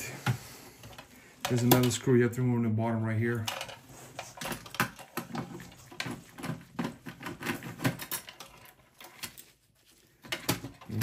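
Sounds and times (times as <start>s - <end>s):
screwdriver clicking and scraping: 3.5s - 9.5s.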